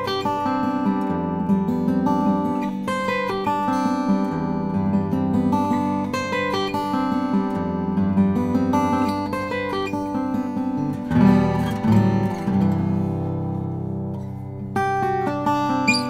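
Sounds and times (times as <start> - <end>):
fingerstyle acoustic guitar: 0.0 - 16.0.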